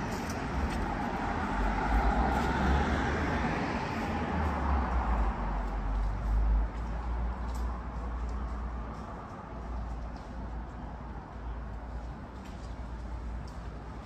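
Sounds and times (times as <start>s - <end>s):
motor vehicle passing: 0.0s - 6.8s.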